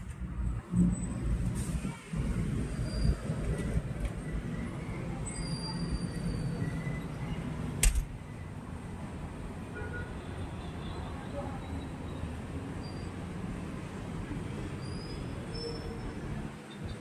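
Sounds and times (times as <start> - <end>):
low traffic rumble: 0.0 - 17.0
sharp click: 7.8 - 8.1.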